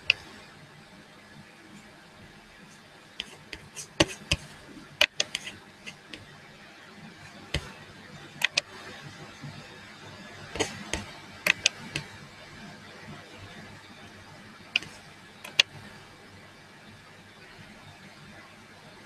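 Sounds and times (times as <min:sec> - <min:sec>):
faint steady hum: 0:00.0 - 0:19.0
sharp clicks and taps: 0:03.2 - 0:06.2, 0:08.4 - 0:08.6, 0:10.6 - 0:12.1, 0:15.5 - 0:15.7.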